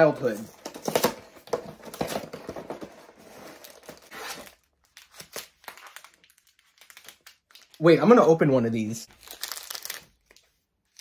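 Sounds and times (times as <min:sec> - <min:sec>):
wrappers rustling and crinkling: 0:03.1 - 0:08.1, 0:09.1 - 0:11.0.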